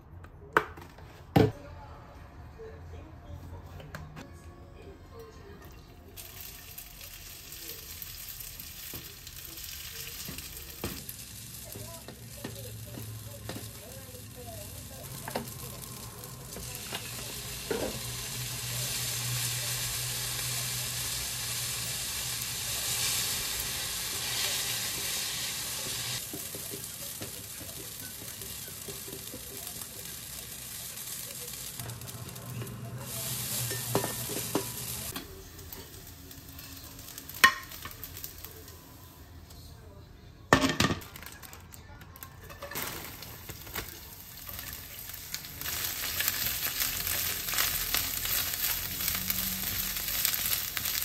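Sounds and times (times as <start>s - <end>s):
noodles sizzling in oil: 6.2s - 39.2s, 42.5s - 51.0s
chopsticks tapping a pan: 25.8s - 30.1s, 37.3s - 38.0s.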